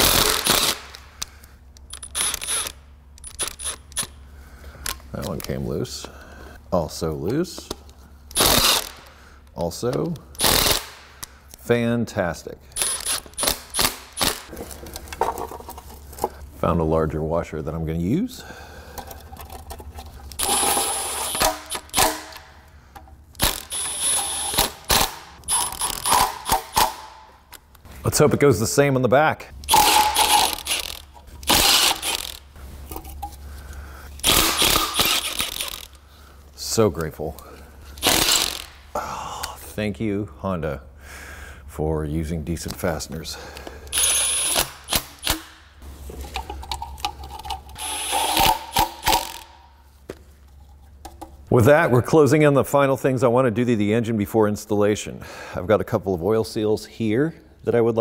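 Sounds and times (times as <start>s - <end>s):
cordless power tool driving bolts: 0.0s - 1.0s, 1.9s - 4.1s, 8.3s - 9.1s, 10.4s - 11.0s, 12.8s - 14.5s, 20.4s - 22.5s, 23.4s - 27.2s, 29.6s - 32.5s, 34.2s - 36.0s, 38.0s - 38.8s, 43.9s - 45.6s, 47.8s - 49.5s
impact wrench hammering: 0.0s - 1.0s, 20.4s - 22.4s, 23.4s - 27.2s, 29.7s - 32.4s, 38.0s - 38.8s, 47.8s - 49.5s.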